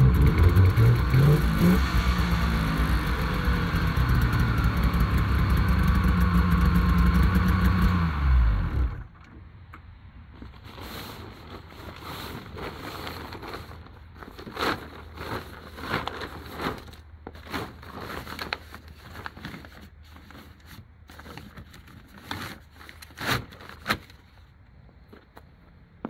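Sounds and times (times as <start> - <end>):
tarp rustling and crinkling: 10.3 - 24.5
loud fabric crackles: 10.4 - 24.3.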